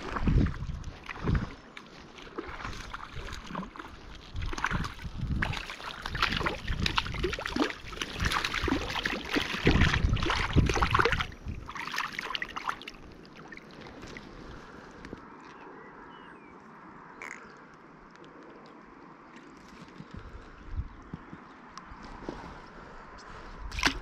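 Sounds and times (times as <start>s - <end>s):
fish splashing in water: 0.0s - 14.5s, 23.7s - 24.0s.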